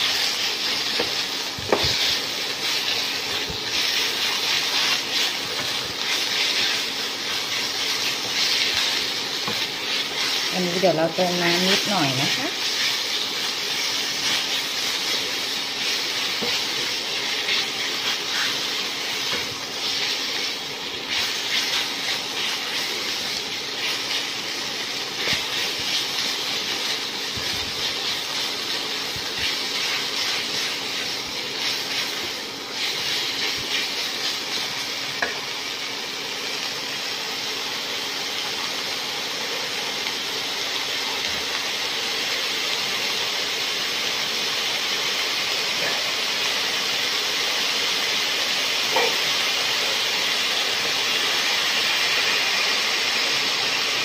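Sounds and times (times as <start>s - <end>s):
spatula scraping a pan: 0.0s - 10.8s, 11.4s - 23.0s
meat sizzling in a pan: 0.0s - 54.0s.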